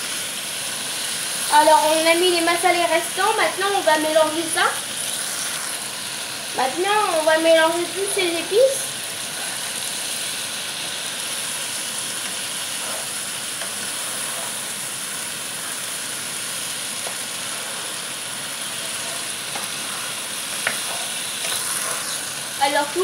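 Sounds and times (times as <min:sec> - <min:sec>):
vegetables sizzling in a frying pan: 0:00.0 - 0:23.0
spatula scraping a pan: 0:12.5 - 0:14.9, 0:17.0 - 0:22.6.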